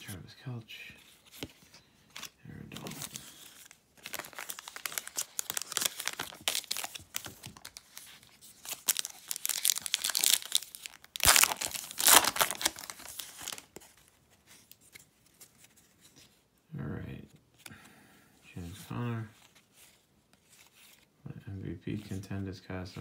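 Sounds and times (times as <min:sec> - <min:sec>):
foil wrapper tearing: 0:04.0 - 0:08.0, 0:08.6 - 0:13.7
foil wrapper crackling: 0:04.0 - 0:13.7.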